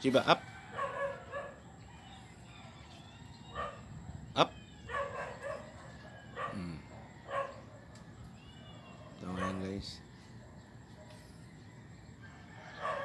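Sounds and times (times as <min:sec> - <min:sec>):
dog barking: 0:00.7 - 0:01.6, 0:03.5 - 0:03.9, 0:04.9 - 0:07.8, 0:09.0 - 0:09.7, 0:12.8 - 0:13.0.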